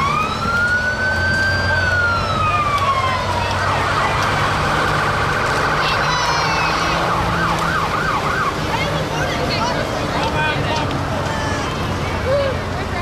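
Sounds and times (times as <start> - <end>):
vehicle engine hum: 0.0 - 13.0.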